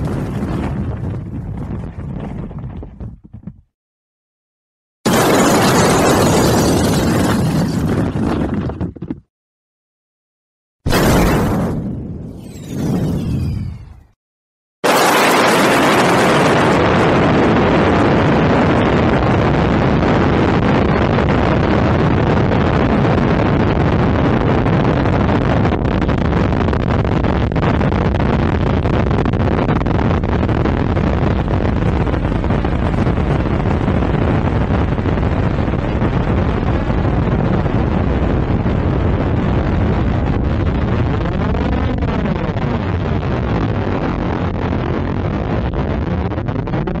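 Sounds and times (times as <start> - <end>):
explosion rumbling roar: 5.1 - 8.8, 10.9 - 14.2, 14.8 - 24.2, 27.7 - 47.0.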